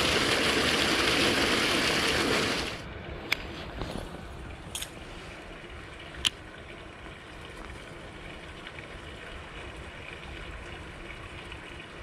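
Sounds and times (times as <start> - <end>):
water noise: 0.0 - 12.0
wind: 0.0 - 12.0.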